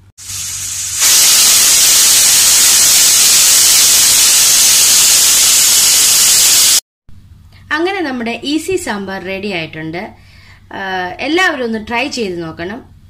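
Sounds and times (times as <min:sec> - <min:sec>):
pressure cooker whistling: 0:00.2 - 0:06.8.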